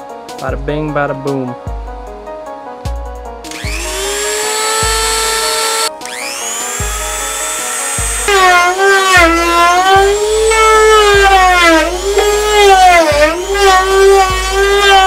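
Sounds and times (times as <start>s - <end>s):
thumping music beat: 0.3s - 15.0s
rotary tool high whine: 3.5s - 15.0s.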